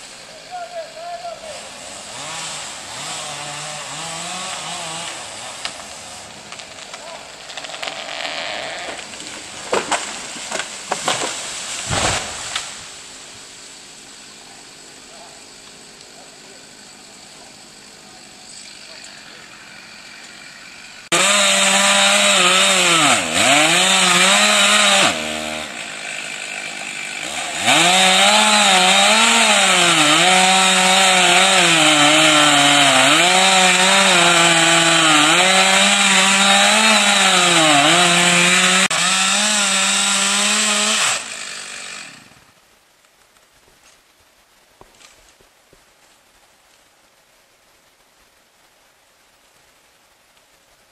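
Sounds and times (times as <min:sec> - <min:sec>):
chainsaw cutting wood: 0:01.8 - 0:12.8, 0:18.5 - 0:42.6.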